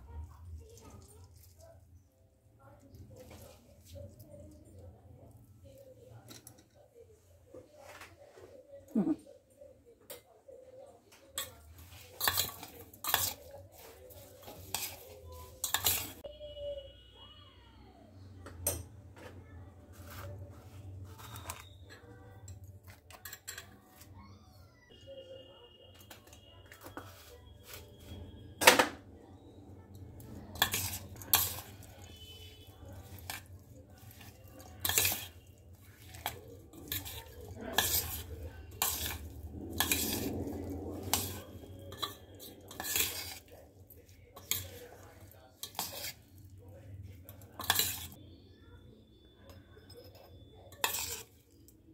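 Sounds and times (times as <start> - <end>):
spoon stirring and scraping dish: 2.7 - 7.0, 10.1 - 16.3, 18.6 - 24.2, 25.9 - 28.4, 29.4 - 48.5, 49.1 - 51.9
spoon clinking against dish: 11.4 - 13.5, 14.5 - 16.2, 21.2 - 24.0, 30.5 - 32.2, 33.0 - 43.5, 47.3 - 48.2, 49.4 - 51.7
scraping and rustling: 30.3 - 48.2.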